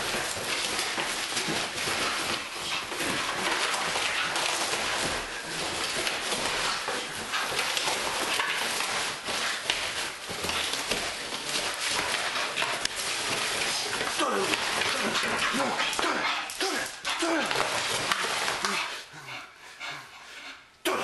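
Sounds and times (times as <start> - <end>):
dog tearing cardboard box: 0.0 - 16.3.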